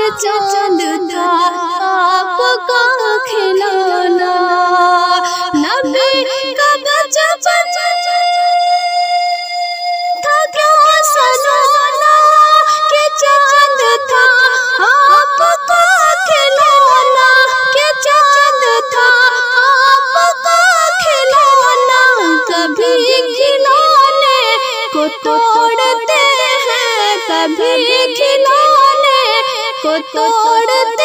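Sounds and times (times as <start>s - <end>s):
woman singing with heavy vibrato: 0.0s - 31.0s.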